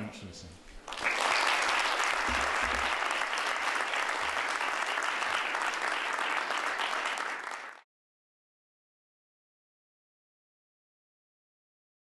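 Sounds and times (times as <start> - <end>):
audience applauding: 0.8 - 7.8.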